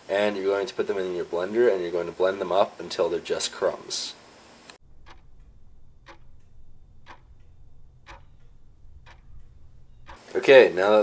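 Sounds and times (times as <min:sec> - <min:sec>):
clock ticking: 0:04.8 - 0:10.2.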